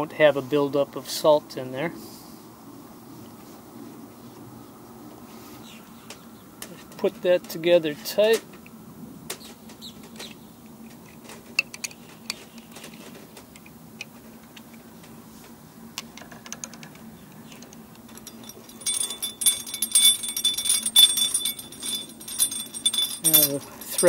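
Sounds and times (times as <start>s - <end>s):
small metallic clicks: 16.0s - 24.0s
metallic jingling: 18.1s - 24.0s.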